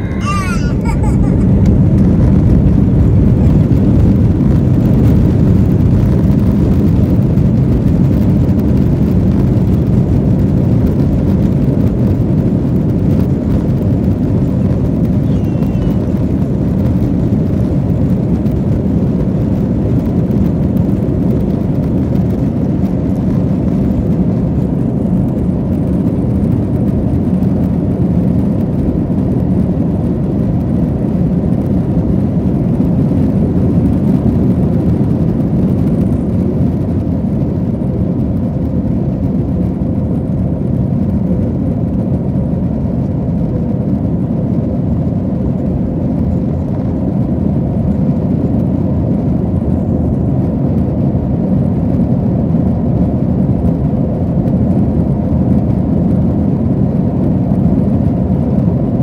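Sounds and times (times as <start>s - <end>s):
jet engines roaring: 0.0s - 27.2s.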